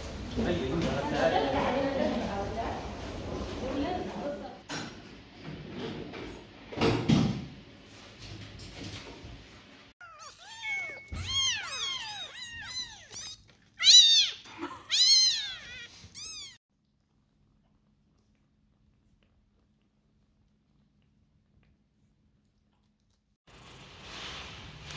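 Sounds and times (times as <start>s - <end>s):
kittens meowing: 10.0s - 16.6s.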